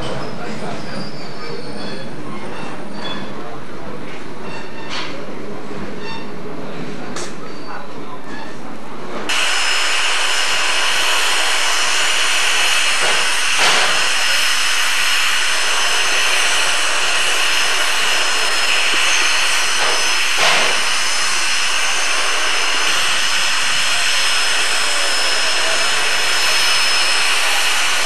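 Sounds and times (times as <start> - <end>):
steam locomotive hissing: 9.3 - 28.0.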